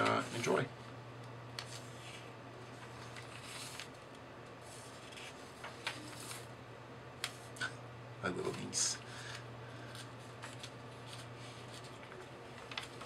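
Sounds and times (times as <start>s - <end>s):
steady low hum: 0.0s - 13.0s
paper rustling: 1.6s - 4.0s, 4.6s - 6.5s, 9.8s - 13.0s.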